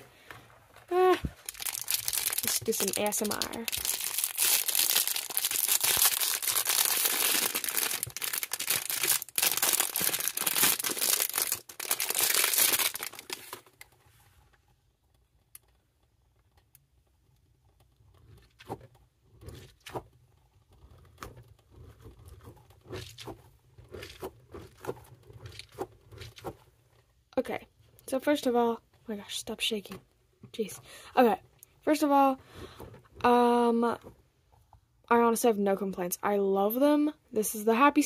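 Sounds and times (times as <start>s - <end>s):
plastic bag crinkling and tearing: 1.2s - 13.9s.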